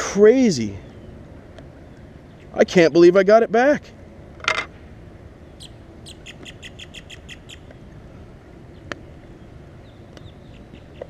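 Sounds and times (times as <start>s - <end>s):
bird chirping: 0.7s - 2.6s, 5.4s - 7.8s, 8.6s - 11.0s.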